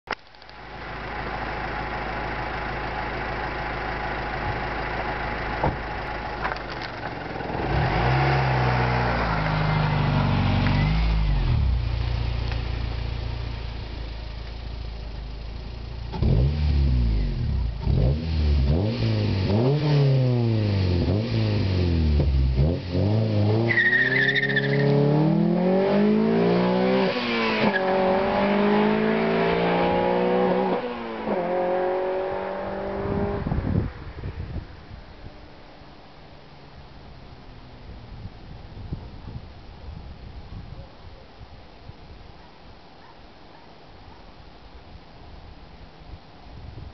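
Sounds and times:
car engine revving and accelerating: 7.4s - 12.3s, 16.1s - 34.0s
high squeal: 23.7s - 24.9s.

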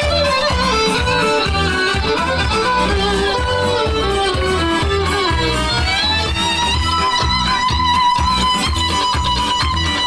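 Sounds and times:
steady low beat: 0.0s - 7.9s
crowd clapping along: 0.0s - 10.0s
violin playing lively melody: 0.0s - 10.0s.

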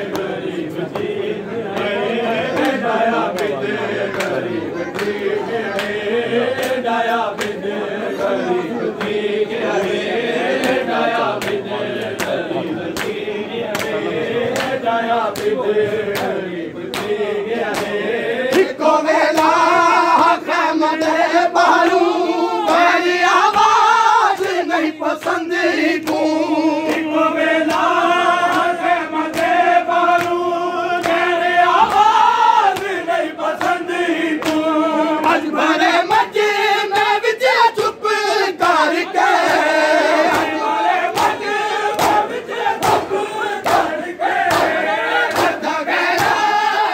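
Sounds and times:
men chanting a lament: 0.0s - 46.9s
hands slapping chests: 0.1s - 6.0s, 6.6s - 7.6s, 10.6s - 19.6s, 26.0s - 30.4s, 31.0s - 31.2s, 31.8s - 35.5s, 39.4s - 46.5s.

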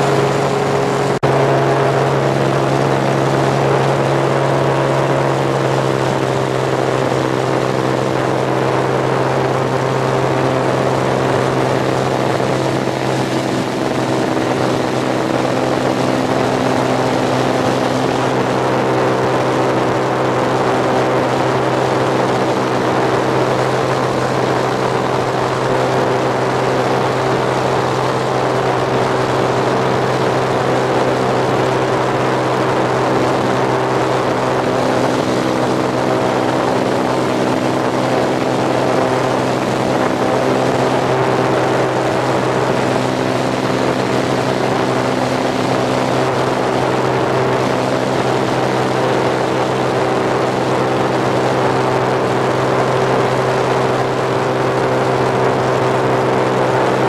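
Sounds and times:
light aircraft engine droning: 0.0s - 57.0s.

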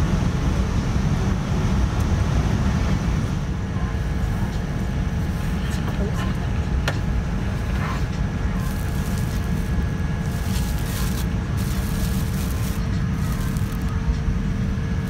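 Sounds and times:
airliner cabin rumble and hum: 0.0s - 15.0s
plastic bag crinkling: 8.6s - 14.0s.

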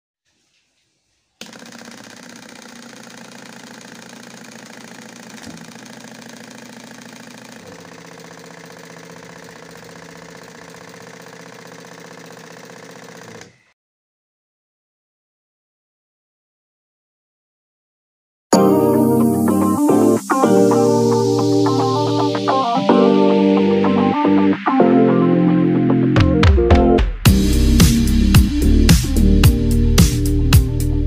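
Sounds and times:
small electric motor running: 1.4s - 13.7s.

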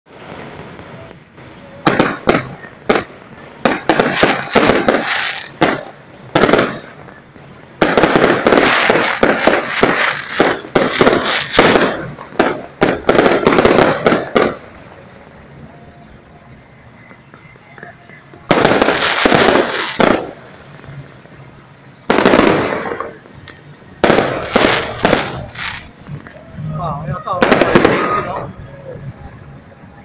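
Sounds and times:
fireworks bangs and crackling: 0.1s - 30.0s.

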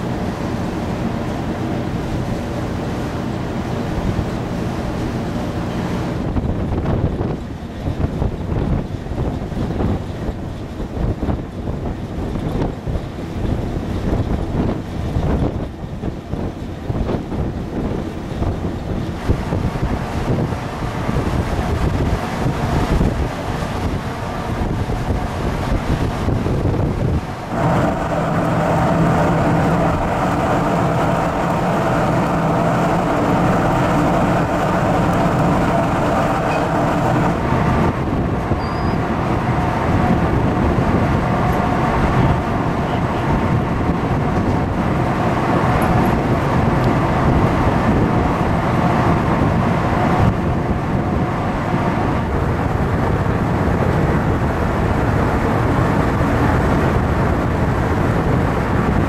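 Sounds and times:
ferry engines droning: 0.0s - 59.0s
wind rushing: 6.0s - 59.0s.

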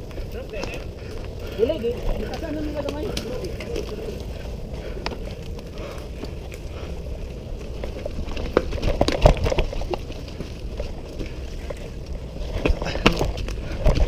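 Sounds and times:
tyres crackling over leaves and twigs: 0.0s - 14.0s.

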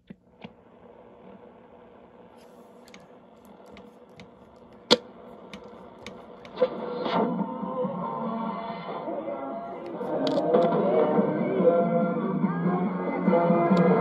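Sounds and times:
radio static hiss: 0.0s - 10.9s
clicks and crackles: 2.2s - 6.7s
radio station audio: 2.3s - 12.2s.

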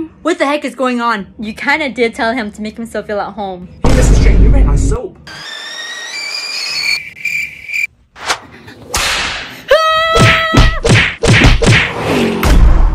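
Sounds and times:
rising whistling tone: 5.3s - 7.9s.

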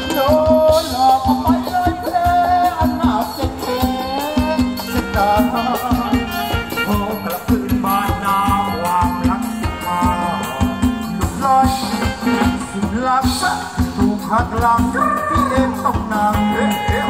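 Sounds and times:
drums steady beat: 0.0s - 17.0s
live band dance music: 0.0s - 17.0s.

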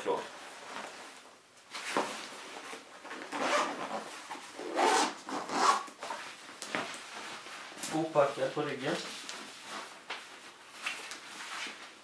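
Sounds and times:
nylon fabric rustling: 0.2s - 12.0s
zipper rasping: 3.3s - 6.0s.

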